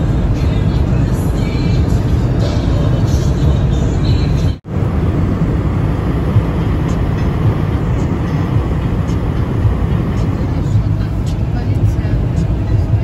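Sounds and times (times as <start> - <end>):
car engine drone: 0.0 - 13.0
tyres on wet highway: 0.0 - 13.0.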